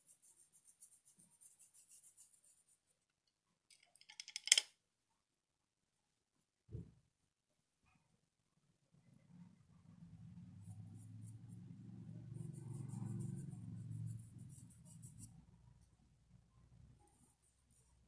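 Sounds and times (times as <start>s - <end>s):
paintbrush scratching on fabric: 0.0s - 3.0s, 10.4s - 15.5s, 17.0s - 18.0s.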